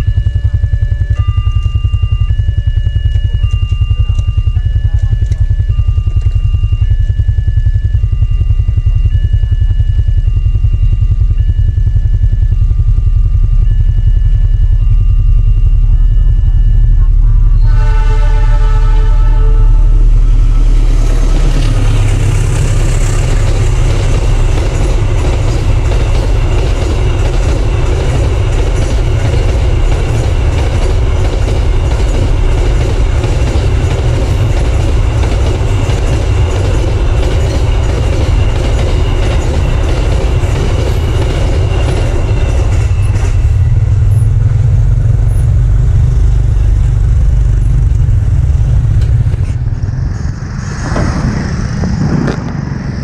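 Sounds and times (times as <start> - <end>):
thin high ringing tone: 0.0 - 49.6
freight train passing: 16.0 - 53.0
wheels clattering on rails: 20.1 - 50.2.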